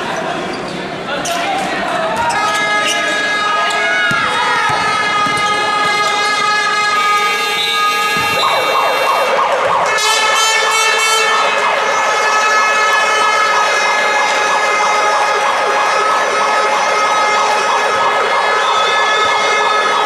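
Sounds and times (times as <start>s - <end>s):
loud crowd noise: 0.0s - 20.0s
long horn blasts: 2.6s - 17.7s.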